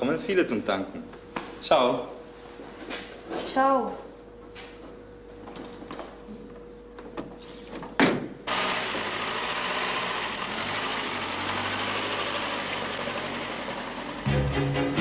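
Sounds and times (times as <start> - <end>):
truck engine starting and running: 8.5 - 14.4.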